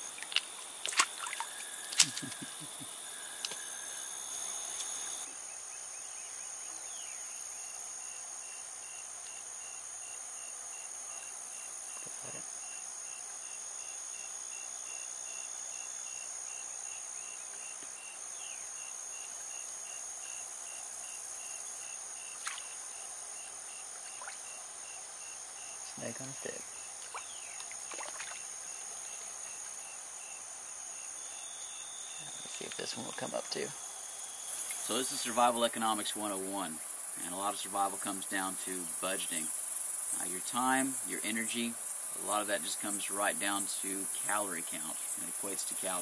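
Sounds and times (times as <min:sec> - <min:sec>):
light water splashes: 0:00.0 - 0:02.6, 0:22.3 - 0:22.8, 0:24.0 - 0:24.6, 0:27.0 - 0:28.5
high insect drone: 0:00.0 - 0:46.0.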